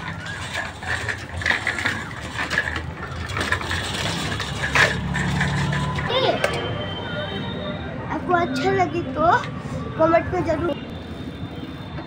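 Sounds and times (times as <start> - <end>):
bicycle rattling over concrete: 0.0 - 6.8.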